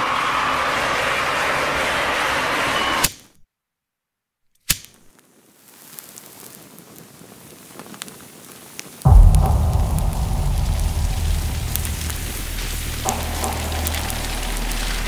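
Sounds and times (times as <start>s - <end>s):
crackling texture with clicks: 9.1s - 15.0s
deep bass-heavy dance music: 9.1s - 15.0s
sharp electronic hit: 9.1s - 15.0s.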